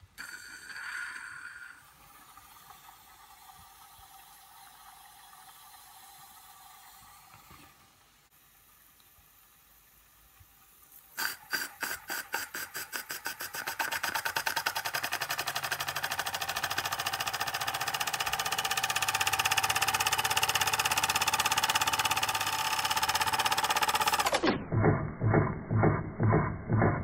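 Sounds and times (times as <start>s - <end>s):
toy steam engine chuffing: 0.2s - 3.0s, 11.2s - 24.5s.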